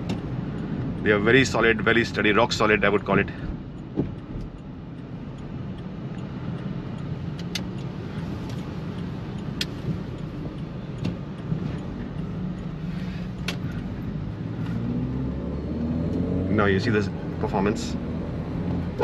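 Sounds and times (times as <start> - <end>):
car engine and road rumble: 0.0 - 19.0
sharp clicks: 5.8 - 7.9.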